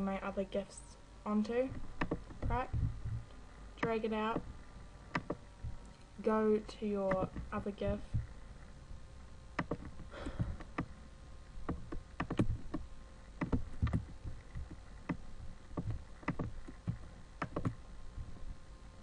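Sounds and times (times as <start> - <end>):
low background rumble: 0.0 - 19.0
computer mouse clicking: 2.0 - 2.6, 5.1 - 6.0, 7.1 - 7.5, 9.6 - 10.9, 11.7 - 12.8, 13.4 - 17.8.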